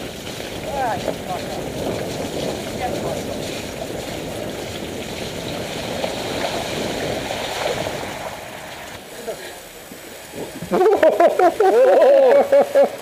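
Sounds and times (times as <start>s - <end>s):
bike tyres on loose stones: 0.0s - 12.4s.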